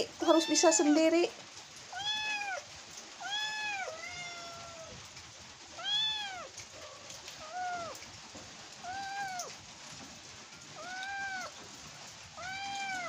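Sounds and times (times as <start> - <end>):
kitten meowing: 0.2 - 1.1, 1.9 - 2.6, 3.2 - 5.0, 5.8 - 8.0, 8.8 - 9.5, 10.8 - 11.6, 12.4 - 13.0.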